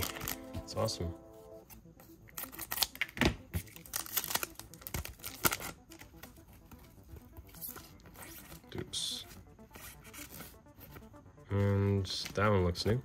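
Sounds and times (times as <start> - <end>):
wrapper tearing and crinkling: 2.3 - 6.2.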